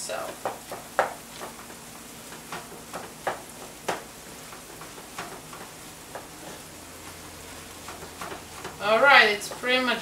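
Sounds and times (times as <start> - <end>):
meat sizzling in a skillet: 0.0 - 10.0
wooden spatula scraping: 0.4 - 10.0.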